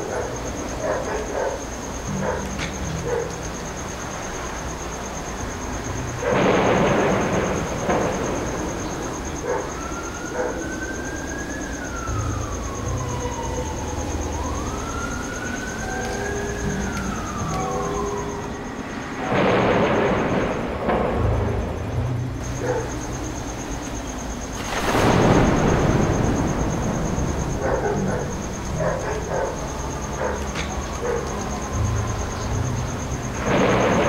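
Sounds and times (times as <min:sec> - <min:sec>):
siren wailing: 0:00.0 - 0:34.0
bursts of rushing noise: 0:06.1 - 0:09.4, 0:18.8 - 0:22.6, 0:24.4 - 0:28.8, 0:33.1 - 0:34.0.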